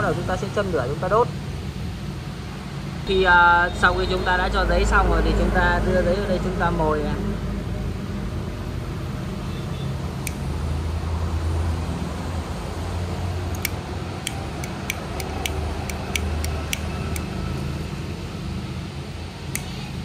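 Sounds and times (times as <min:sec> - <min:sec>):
lighter clicking: 0:10.2 - 0:10.4, 0:13.5 - 0:17.3, 0:19.6 - 0:19.8.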